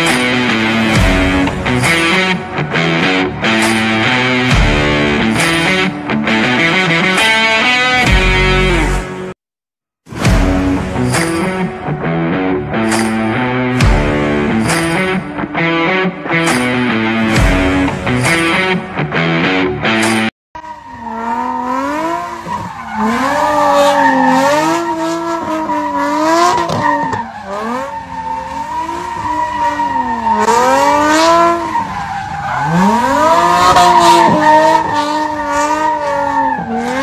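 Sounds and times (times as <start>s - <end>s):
car engine revving: 0.0s - 9.1s, 10.2s - 37.0s
rock guitar music: 0.0s - 9.3s, 10.2s - 20.3s.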